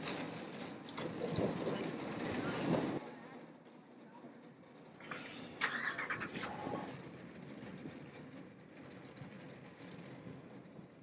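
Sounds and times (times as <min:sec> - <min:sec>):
caster wheels rolling on asphalt: 0:00.0 - 0:11.0
rattling and clatter: 0:04.6 - 0:11.0.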